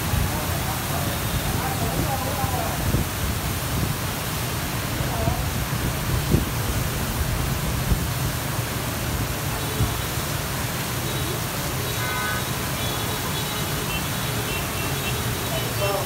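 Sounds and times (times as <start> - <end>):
wind rumbling on microphone: 0.0 - 10.7
heavy rain hissing: 0.0 - 16.0.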